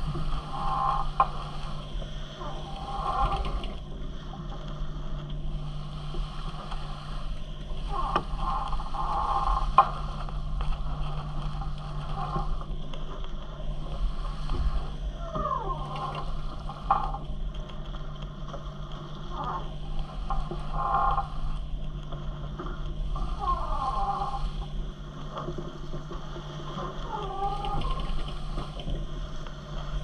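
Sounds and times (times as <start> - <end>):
boat creaking and squeaking: 0.0 - 3.9, 5.5 - 12.8, 13.8 - 17.3, 23.2 - 24.8, 26.4 - 29.1
steady low hum: 0.0 - 30.0
water rushing against hulls: 0.0 - 30.0.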